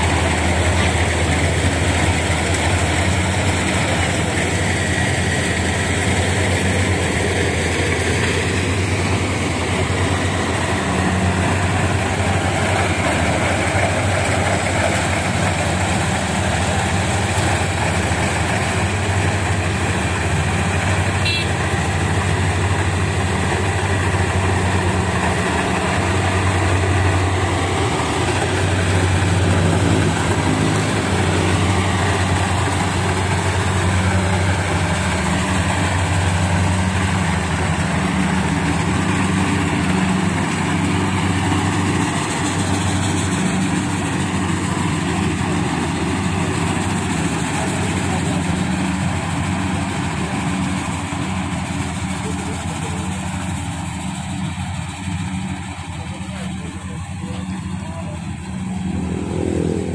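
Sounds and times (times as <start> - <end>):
diesel engine drone: 0.0 - 59.9
harvester mechanical rush: 0.0 - 59.9.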